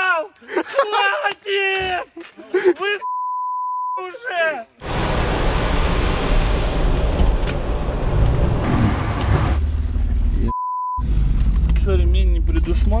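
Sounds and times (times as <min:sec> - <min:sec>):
censor beep: 0:03.0 - 0:04.0, 0:10.5 - 0:11.0
car engine and tyre noise: 0:04.8 - 0:13.0.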